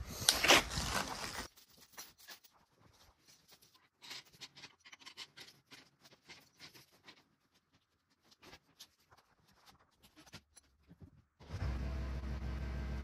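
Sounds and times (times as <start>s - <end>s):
steel chain clinking and scraping: 1.4s - 7.2s.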